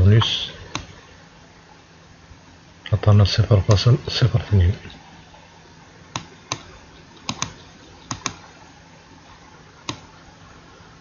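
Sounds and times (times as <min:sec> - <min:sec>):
faint room hiss: 0:00.0 - 0:11.0
computer mouse clicks: 0:00.7 - 0:00.9, 0:06.1 - 0:08.4, 0:09.8 - 0:10.1.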